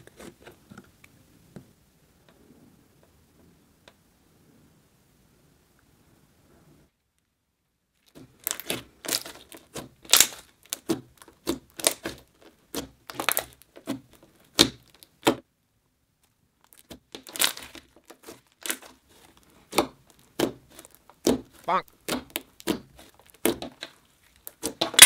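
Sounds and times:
slime clicking and crackling: 8.0s - 15.4s, 16.2s - 25.0s.

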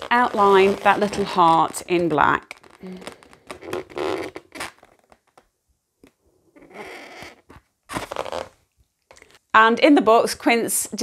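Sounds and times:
marker scratching on balloon: 0.0s - 5.5s, 6.5s - 8.5s.

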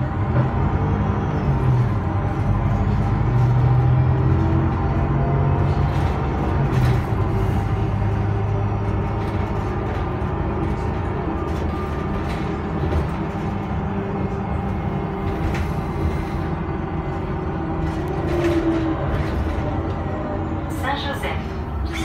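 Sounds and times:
bus engine hum: 0.0s - 22.0s
road rumble: 0.0s - 22.0s.

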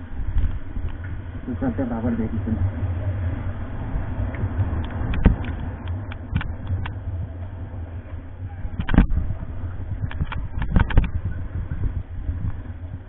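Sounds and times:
motorcycle engine rumbling: 0.0s - 13.0s.

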